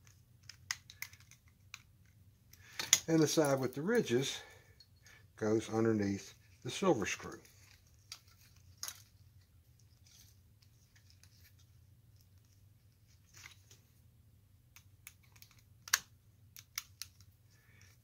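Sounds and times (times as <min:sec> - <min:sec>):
small metal parts clicking: 0:00.4 - 0:01.9.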